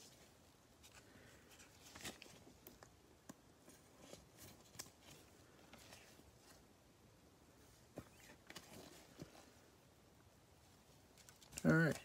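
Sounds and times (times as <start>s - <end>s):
trading cards rustling and clicking: 0.8s - 6.6s.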